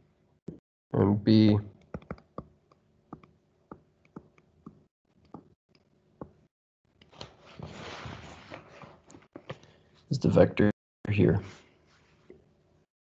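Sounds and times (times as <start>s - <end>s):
stylus tapping on tablet screen: 1.8s - 5.5s.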